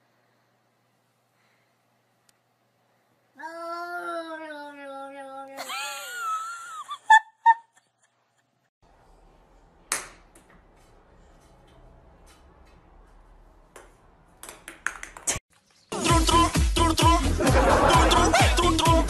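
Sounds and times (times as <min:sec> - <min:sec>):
click: 0:02.2 - 0:02.4.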